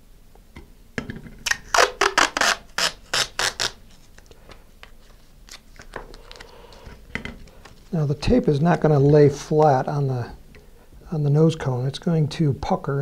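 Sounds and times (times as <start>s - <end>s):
tape ripping off roll: 1.4s - 4.2s
tape handling: 1.4s - 9.7s.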